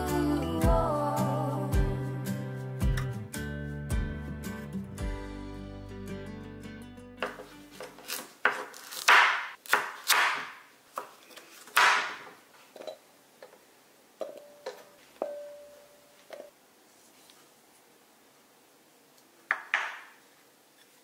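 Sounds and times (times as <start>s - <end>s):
knife chopping on wooden board: 7.2s - 12.3s
glass bowl ringing: 14.2s - 16.2s.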